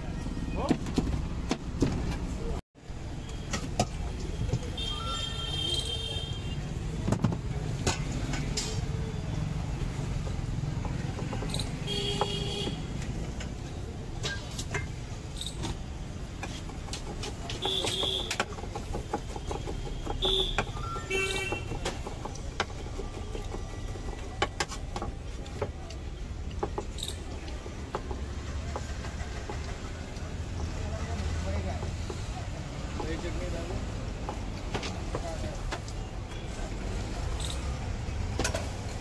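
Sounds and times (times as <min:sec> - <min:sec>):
street traffic rumble: 0:00.0 - 0:39.0
knife chopping on wooden board: 0:16.4 - 0:25.9.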